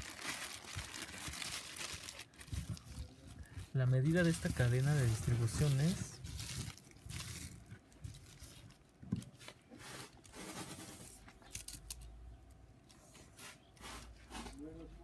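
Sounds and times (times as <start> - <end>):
plastic bag rustling: 0.0 - 11.3.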